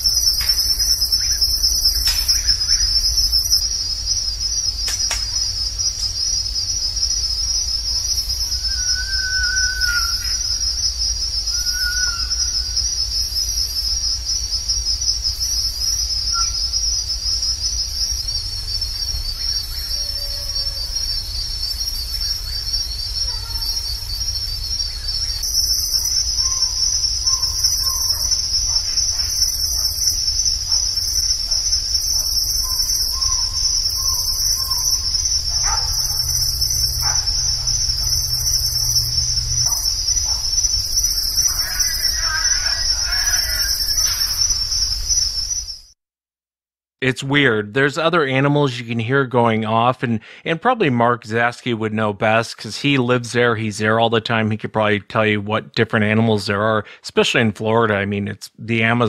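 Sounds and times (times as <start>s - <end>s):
distant animal calls: 0.0s - 45.8s
night insects chorus: 0.0s - 46.0s, 47.4s - 51.5s, 52.2s - 55.3s
low rumble: 34.1s - 41.5s.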